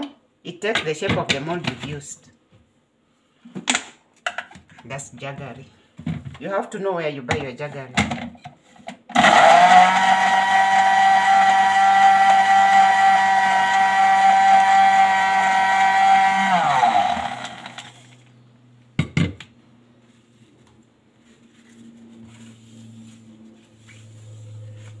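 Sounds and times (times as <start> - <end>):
blender motor running: 9.2 - 18.3.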